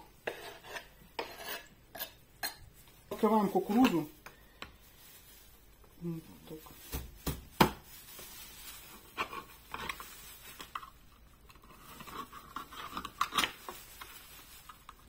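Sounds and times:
knife scraping through tin: 0.2 - 2.6.

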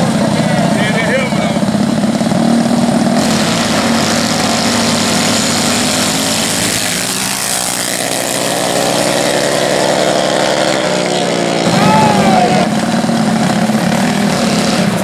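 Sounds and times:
minibike engines accelerating: 0.0 - 15.0.

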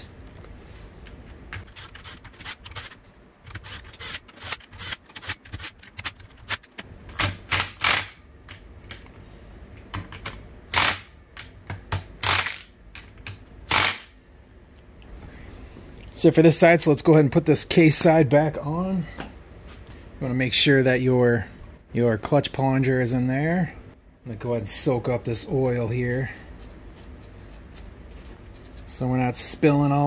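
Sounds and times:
socket ratchet clicking: 1.8 - 9.0, 10.2 - 11.5, 12.2 - 14.1.

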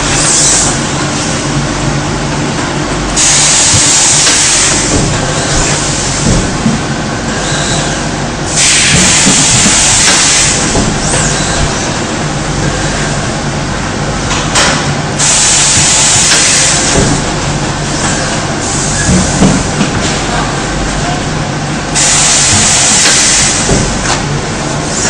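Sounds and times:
machine hum: 0.0 - 25.0
compressed air hiss: 3.2 - 6.3, 8.5 - 11.7, 22.0 - 23.7.

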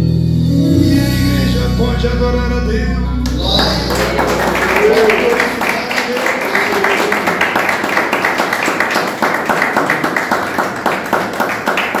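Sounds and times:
audience applause: 3.3 - 12.0.

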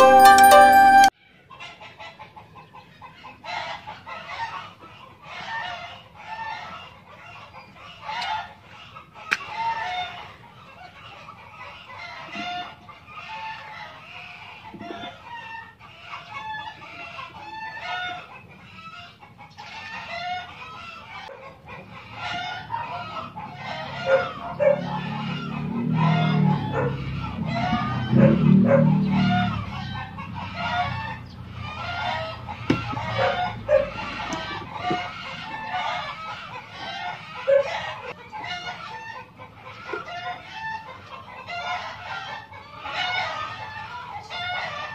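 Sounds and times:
chickens clucking: 0.0 - 44.9.

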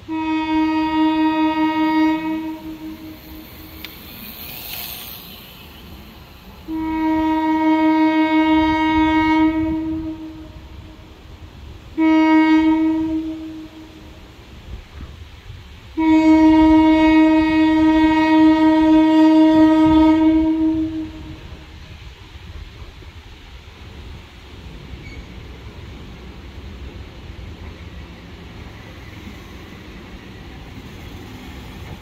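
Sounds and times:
air horn blasts: 0.0 - 3.8, 6.7 - 10.9, 12.0 - 14.1, 16.0 - 21.5.

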